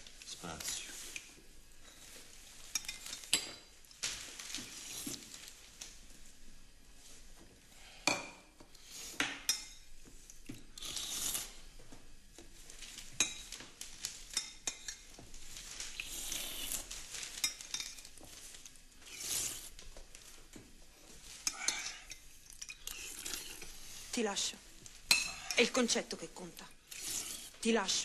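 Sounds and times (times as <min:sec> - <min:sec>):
slurping: 0:22.8 - 0:23.8, 0:26.9 - 0:27.6
spoons clinking against bowls: 0:25.1 - 0:25.7.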